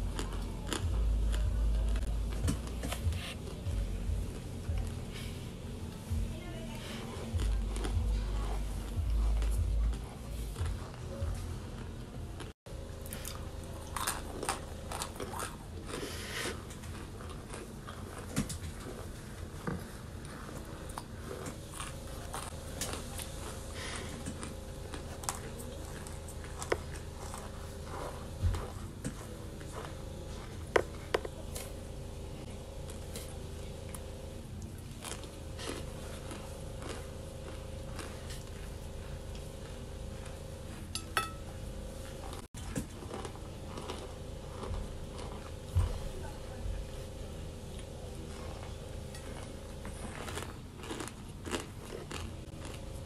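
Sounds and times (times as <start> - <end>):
chewing and crunching: 0.0 - 53.0
steady low hum: 0.0 - 53.0.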